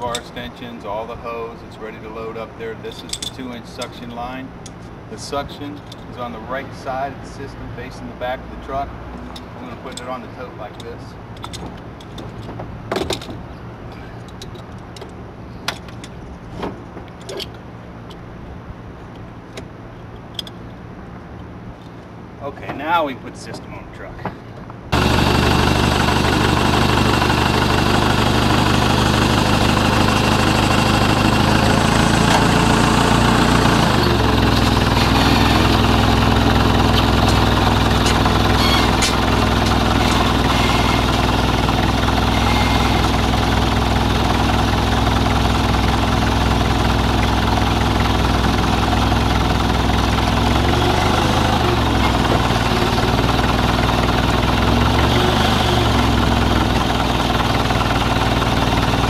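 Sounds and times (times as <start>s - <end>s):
engine idling: 24.9s - 59.0s.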